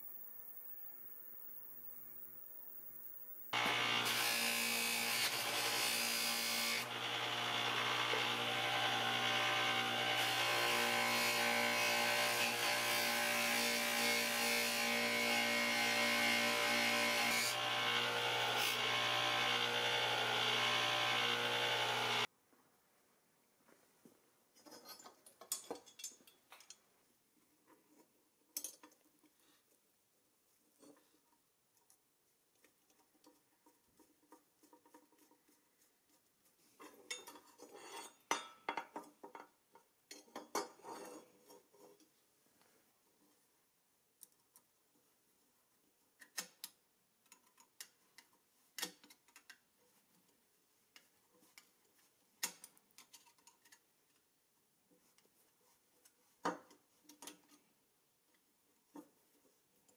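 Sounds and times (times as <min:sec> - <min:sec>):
bench grinder buffing metal: 0:00.0 - 0:22.3.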